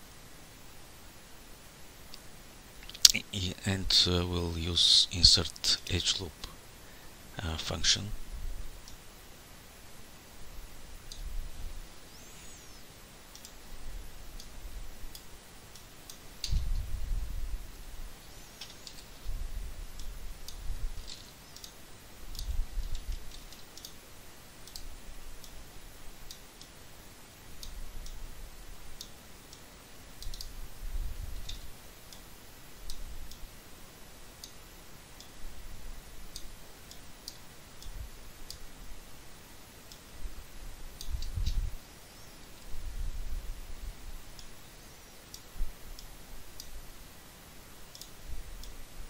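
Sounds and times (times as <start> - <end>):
computer mouse and keyboard clicks: 13.3 - 13.6, 18.5 - 19.3, 20.0 - 24.0, 30.2 - 30.6.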